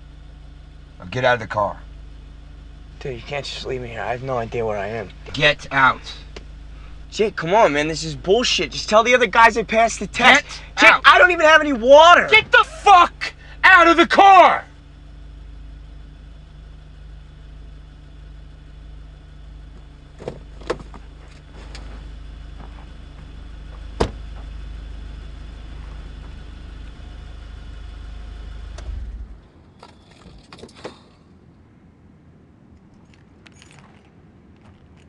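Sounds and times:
car engine idling: 0.0 - 35.0
car door slamming: 20.2 - 21.0, 23.9 - 24.4.

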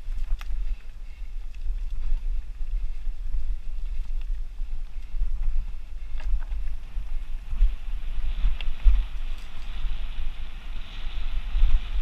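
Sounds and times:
bike rattling clicks: 0.0 - 2.4
mountain bike rolling over dirt: 0.0 - 12.0
wind buffeting microphone: 0.0 - 12.0.

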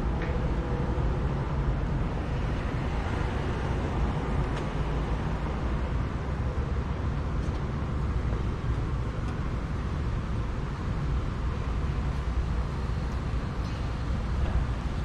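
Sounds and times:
distant road traffic hum: 0.0 - 15.0.

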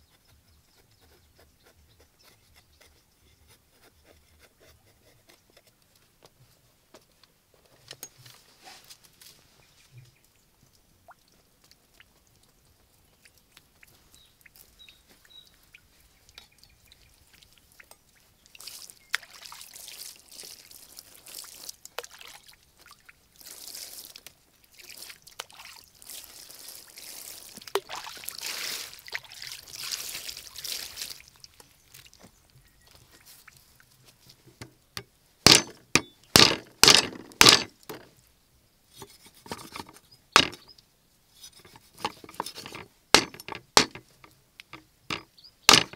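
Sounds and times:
water splashing and pouring: 17.2 - 32.2
cleaver chopping on wooden block: 35.5 - 38.0.

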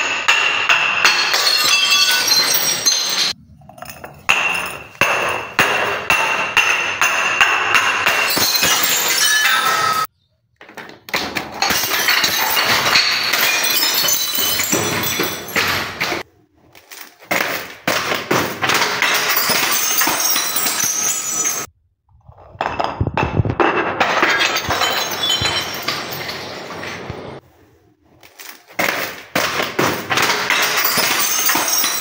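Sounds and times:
glass bottles smashing on stairs: 0.0 - 16.2, 16.8 - 21.7, 22.5 - 27.4, 28.3 - 32.0
shards clattering and tinkling: 1.1 - 5.6, 8.1 - 10.1, 11.6 - 16.2, 18.8 - 21.7, 24.2 - 27.0, 30.2 - 32.0.

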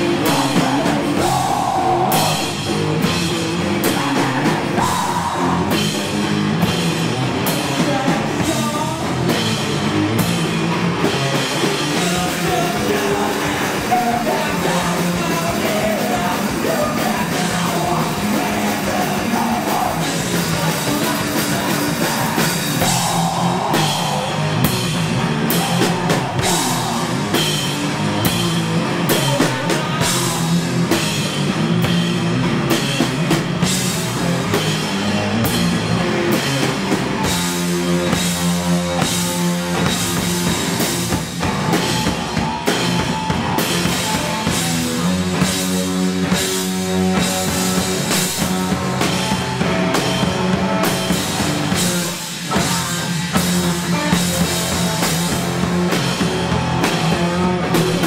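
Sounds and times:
drum kit: 0.0 - 58.0
electric guitar: 0.0 - 58.0.

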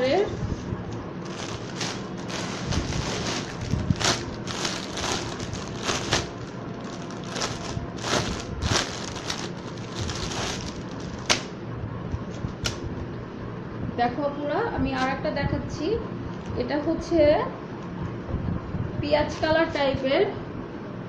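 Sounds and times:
cloth rustling: 1.2 - 11.5.

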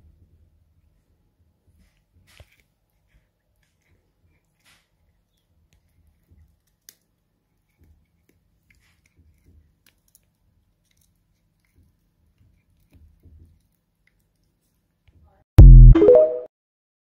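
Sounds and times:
cat chewing wood: 1.7 - 14.8.

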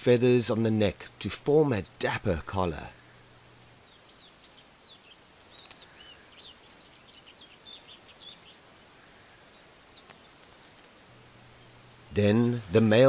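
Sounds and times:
outdoor background hiss: 0.0 - 13.0
small birds chirping: 0.0 - 13.0.

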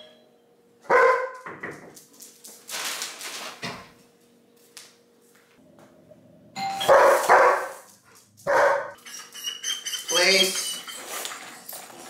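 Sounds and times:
doorbell chiming: 0.0 - 0.3, 6.6 - 7.1
dog barking loudly: 0.9 - 1.4, 6.9 - 7.8, 8.5 - 9.0.

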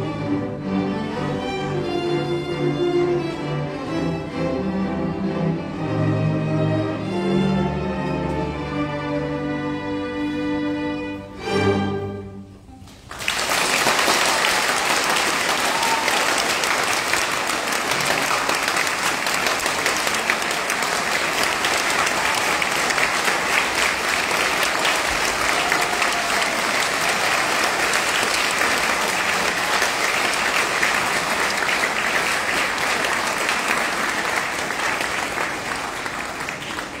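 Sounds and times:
string orchestra chords: 0.0 - 13.3
audience applause: 12.9 - 37.0.

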